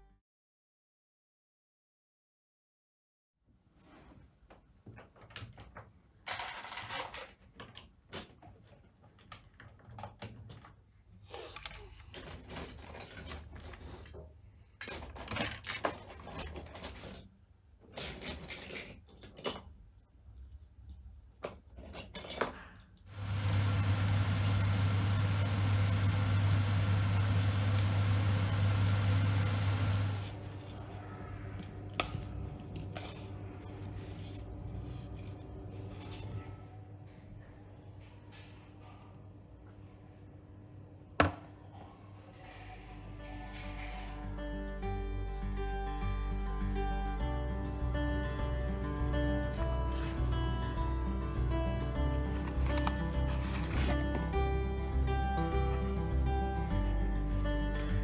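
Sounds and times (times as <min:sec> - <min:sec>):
plastic bricks clicking and clattering: 0:06.3 - 0:07.9, 0:14.8 - 0:17.3
loud steady hiss: 0:23.1 - 0:30.4
low hum: 0:23.1 - 0:36.5.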